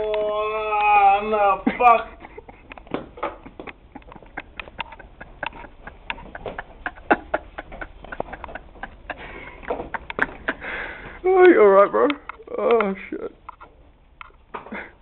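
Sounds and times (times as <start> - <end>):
objects clicking and knocking: 2.6 - 10.6.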